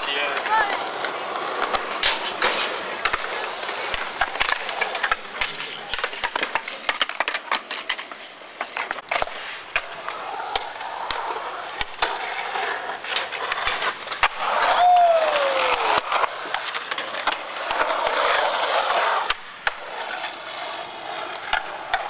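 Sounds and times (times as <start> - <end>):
skateboard clacking against ground: 0.0 - 22.0
skateboard wheels rolling on concrete: 0.0 - 22.0.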